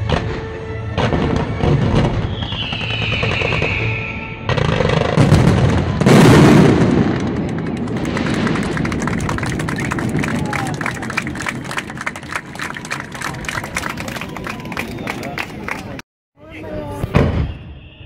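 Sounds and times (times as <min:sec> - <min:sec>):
fireworks bangs and crackling: 0:00.0 - 0:14.2, 0:16.8 - 0:18.0
falling firework whistle: 0:01.3 - 0:05.1, 0:17.1 - 0:18.0.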